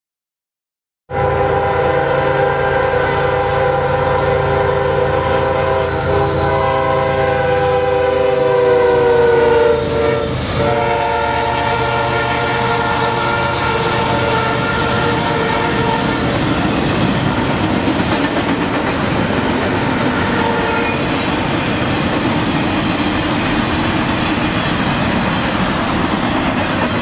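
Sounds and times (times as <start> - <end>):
locomotive air horn: 1.1 - 16.3, 19.7 - 21.1
locomotive engine rumble: 3.4 - 27.0.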